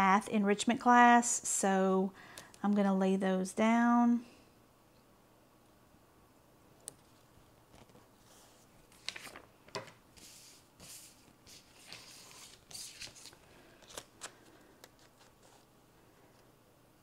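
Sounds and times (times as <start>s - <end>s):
paper rustling: 7.0s - 15.7s.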